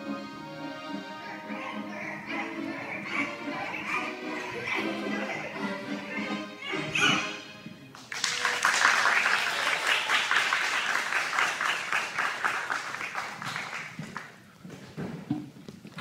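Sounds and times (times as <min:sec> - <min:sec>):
audience applauding: 0:07.9 - 0:14.4.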